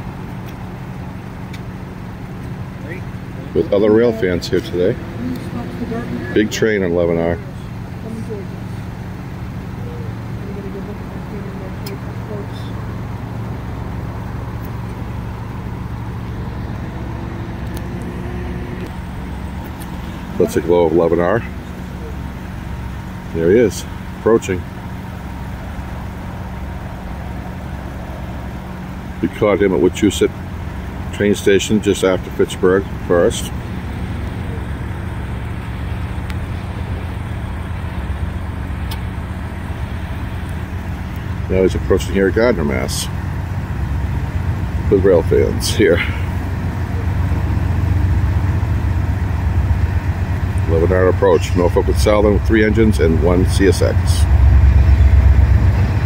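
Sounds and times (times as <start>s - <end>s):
diesel locomotive engines droning: 0.0s - 56.0s.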